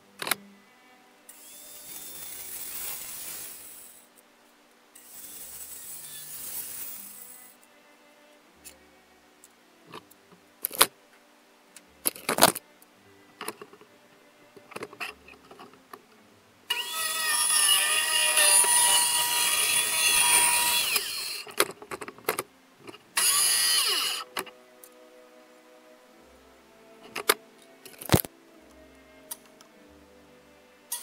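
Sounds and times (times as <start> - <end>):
circular saw cutting plywood: 1.3 - 4.1, 5.0 - 7.6, 16.7 - 21.5, 23.2 - 24.3.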